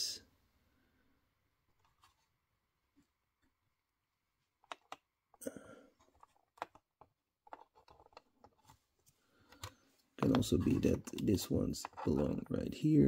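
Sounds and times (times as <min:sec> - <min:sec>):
small parts clicking and tapping: 0:04.6 - 0:05.1, 0:06.0 - 0:08.7.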